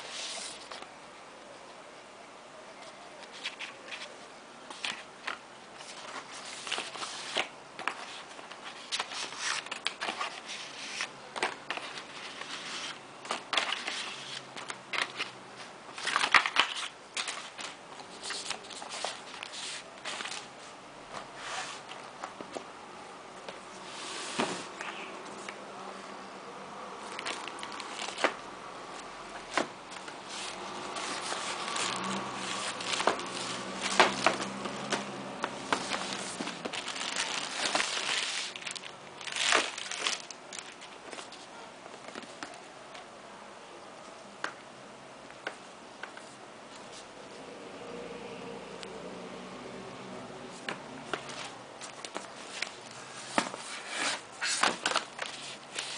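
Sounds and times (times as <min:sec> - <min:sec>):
plastic sheet crinkling: 0:15.9 - 0:20.6, 0:27.0 - 0:42.6, 0:51.1 - 0:55.9.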